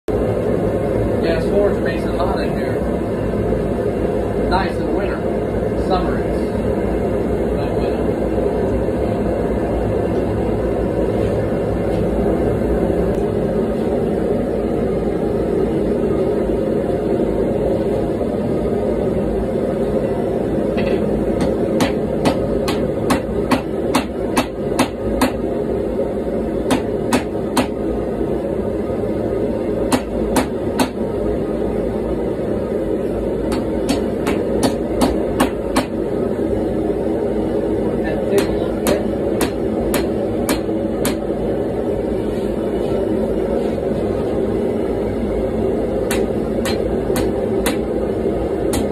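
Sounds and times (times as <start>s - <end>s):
gas forge burner rushing: 0.1s - 48.9s
hammer striking steel on anvil: 20.8s - 25.4s, 26.7s - 27.8s, 29.9s - 31.0s, 33.5s - 36.0s, 38.4s - 41.2s, 46.1s - 47.8s.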